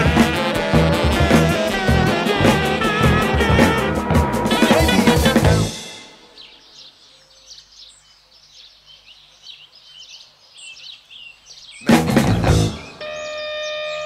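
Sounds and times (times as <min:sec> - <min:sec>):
loud drum-driven music: 0:00.0 - 0:06.4, 0:11.9 - 0:13.0
faint high chirps and twitters: 0:12.7 - 0:14.0.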